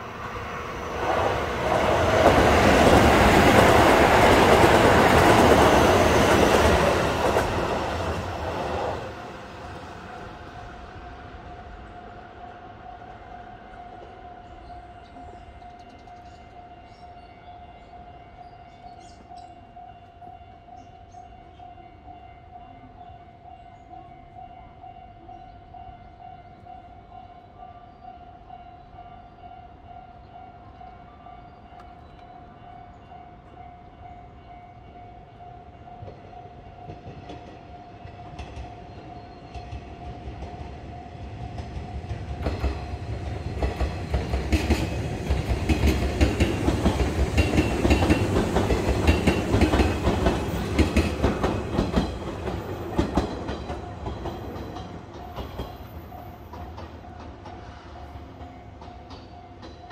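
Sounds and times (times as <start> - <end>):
train wheels clattering: 36.0 - 59.9.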